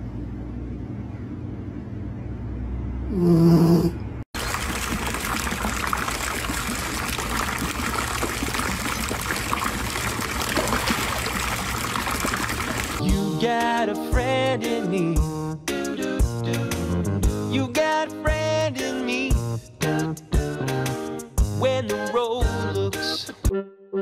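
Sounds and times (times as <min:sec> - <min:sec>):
water splashing and sloshing: 0:04.4 - 0:13.0.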